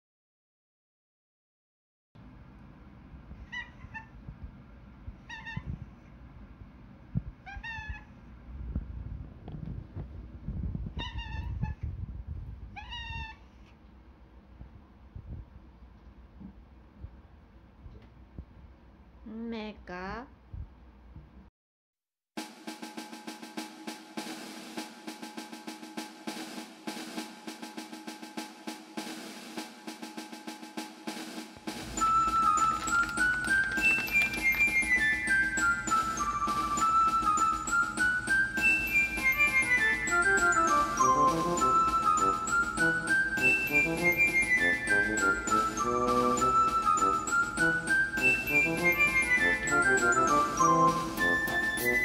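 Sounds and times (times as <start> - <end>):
cat meowing: 3.4 - 4.2, 5.2 - 5.8, 7.4 - 8.2, 11.0 - 11.8, 12.7 - 13.8
background music with drums: 22.4 - 52.0.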